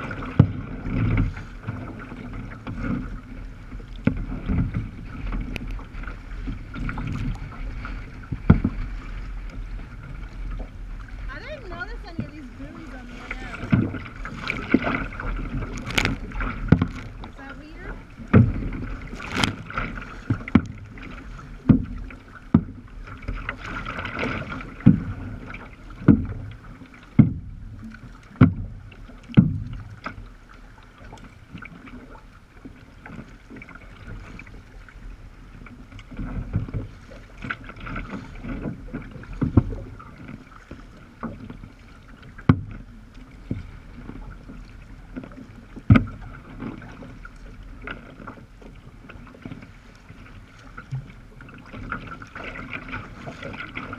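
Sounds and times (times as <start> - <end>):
water splashing against kayak hull: 0.0 - 53.9
wind: 0.0 - 53.9
wash of water: 4.0 - 22.5.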